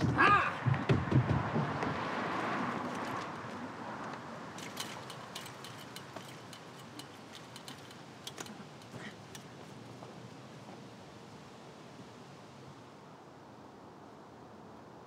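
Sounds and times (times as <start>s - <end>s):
rush of background noise: 0.0s - 15.0s
chain-link fence clinking: 4.5s - 9.6s.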